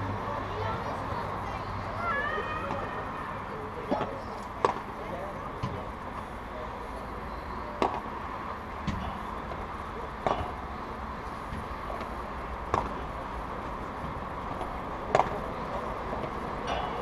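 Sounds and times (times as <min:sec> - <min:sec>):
steady background noise: 0:00.0 - 0:17.0
rackets striking ball: 0:02.7 - 0:02.9, 0:03.8 - 0:05.0, 0:07.7 - 0:08.1, 0:08.8 - 0:10.8, 0:11.5 - 0:13.2, 0:13.8 - 0:17.0.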